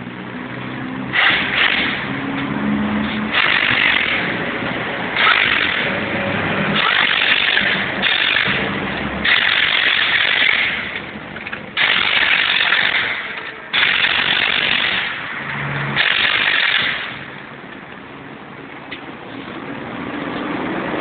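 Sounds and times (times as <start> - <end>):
pneumatic impact wrench hammering: 1.1 - 6.1, 6.7 - 17.4.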